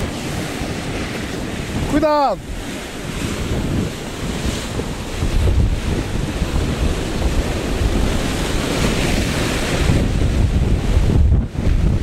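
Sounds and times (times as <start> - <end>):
surf breaking over rocks: 0.0 - 12.0
wind buffeting microphone: 0.0 - 12.0.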